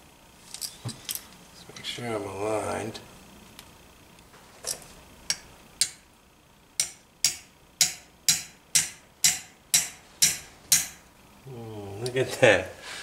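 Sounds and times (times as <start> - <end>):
small hammer tapping metal: 5.3 - 6.0, 6.8 - 11.0.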